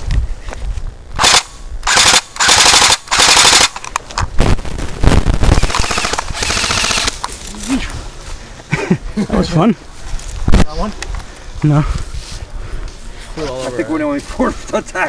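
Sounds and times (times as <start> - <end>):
airsoft rifle full-auto bursts: 1.2 - 3.9, 5.6 - 7.2
low thumps: 4.2 - 6.5.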